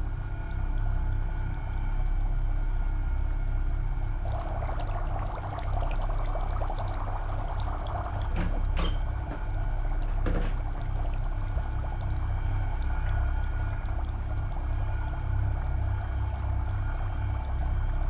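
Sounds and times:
steady low hum: 0.0 - 18.0
water bubbling in saucepan: 4.1 - 18.0.

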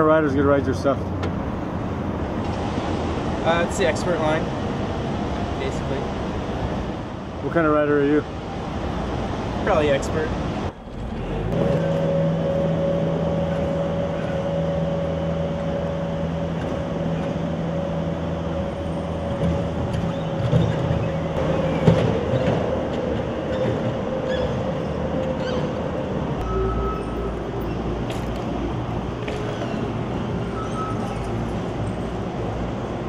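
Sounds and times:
track loader engine running: 10.3 - 33.0
metal clanks and knocks: 19.3 - 24.0.

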